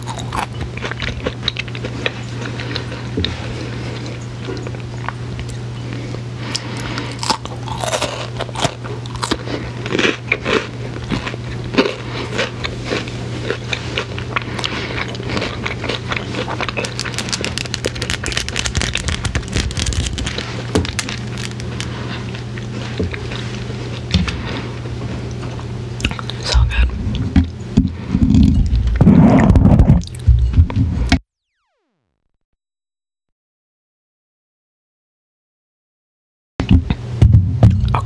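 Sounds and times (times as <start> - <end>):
crunching wafer bites: 0.0 - 2.9, 6.6 - 23.3
fast crackling chewing: 0.0 - 5.6, 6.5 - 27.6
low hum: 0.0 - 31.9, 36.6 - 38.0.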